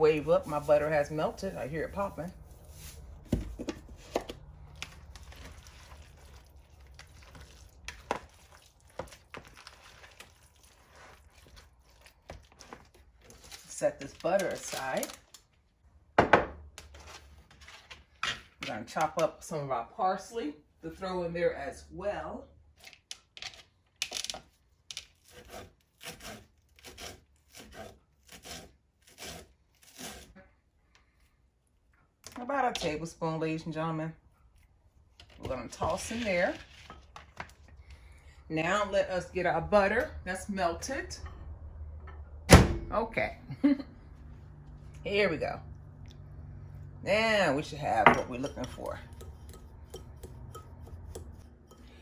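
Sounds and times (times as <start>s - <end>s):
spoon stirring thick mixture: 0.0s - 14.8s, 47.7s - 52.0s
soft squelching: 4.4s - 13.6s
knife chopping herbs on board: 48.6s - 51.5s.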